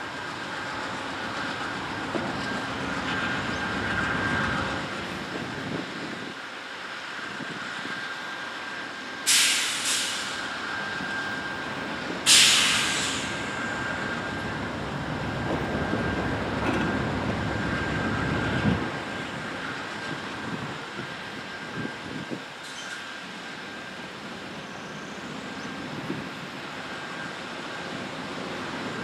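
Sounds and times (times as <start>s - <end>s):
diesel locomotives idling: 0.0s - 29.0s
compressed air hissing: 9.3s - 10.5s, 12.3s - 13.6s.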